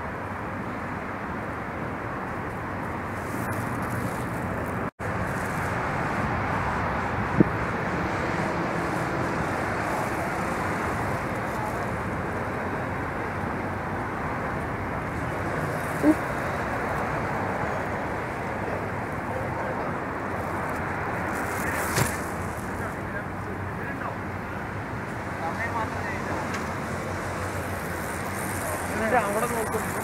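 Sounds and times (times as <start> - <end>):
city traffic: 0.0 - 30.0.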